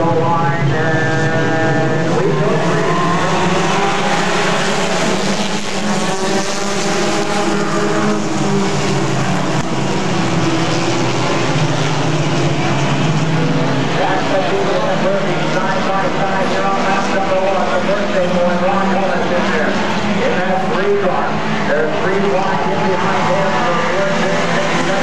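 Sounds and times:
race car engines: 0.0s - 25.0s.

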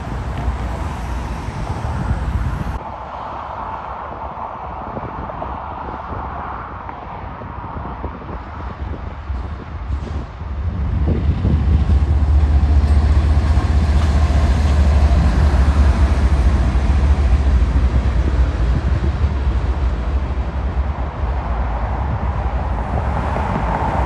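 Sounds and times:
diesel locomotive engine rumble: 0.0s - 2.8s, 8.3s - 24.0s
freight cars rolling on rails: 0.0s - 2.8s, 8.3s - 24.0s.

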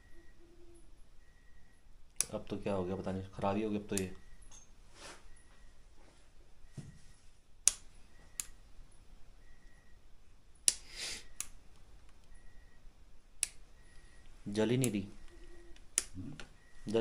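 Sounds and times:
short breathy hiss: 10.8s - 11.4s.

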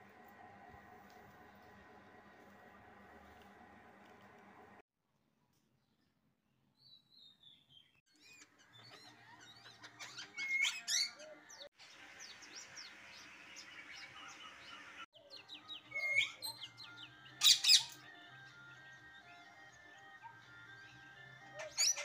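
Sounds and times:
parakeets chirping and whistling: 8.2s - 11.6s, 12.2s - 18.0s, 21.6s - 22.0s.

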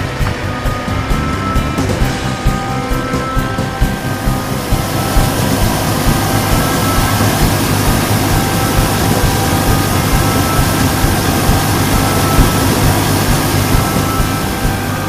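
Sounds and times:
combine harvester engine running: 0.0s - 15.0s
unloading auger running: 3.9s - 15.0s.

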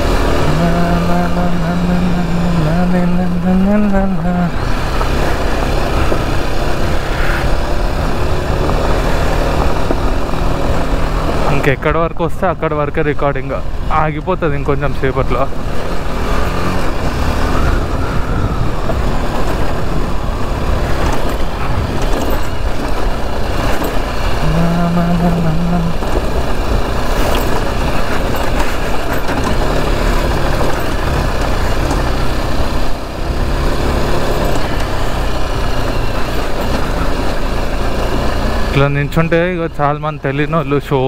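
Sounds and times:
motorcycle engine running: 0.0s - 40.9s
wind noise on microphone: 15.5s - 24.5s.

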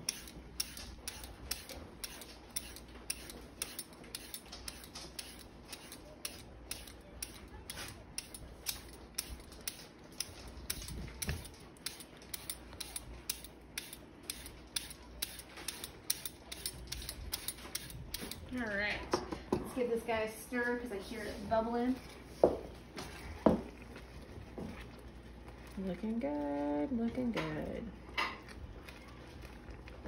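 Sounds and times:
peeler scraping carrot: 0.0s - 18.6s.

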